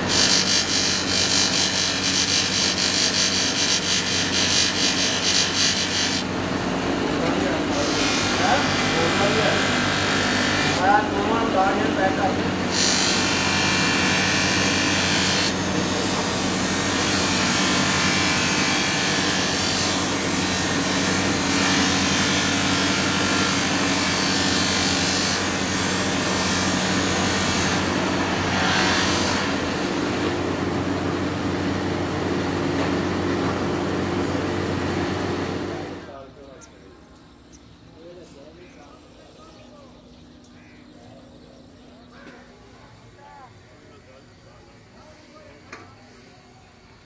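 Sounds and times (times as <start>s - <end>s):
knife scraping on grinding wheel: 0.0s - 6.3s, 7.7s - 10.8s, 12.6s - 29.7s
grinding wheel motor hum: 0.0s - 36.2s.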